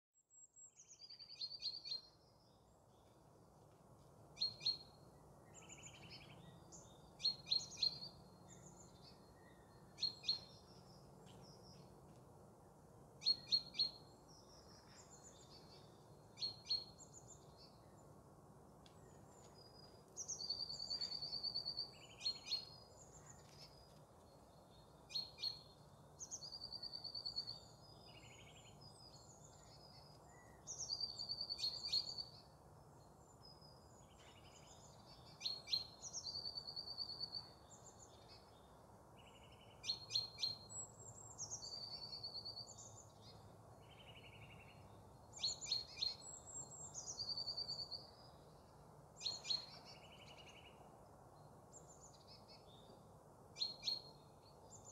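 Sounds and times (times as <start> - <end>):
bird chirps: 4.4 - 11.9, 13.2 - 18.0, 19.0 - 48.6, 49.2 - 53.0.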